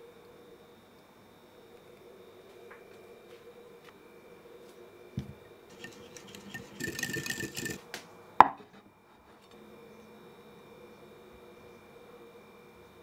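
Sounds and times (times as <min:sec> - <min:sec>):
ceramic clink: 0:05.2 - 0:07.8
scraping and rustling: 0:05.2 - 0:07.8.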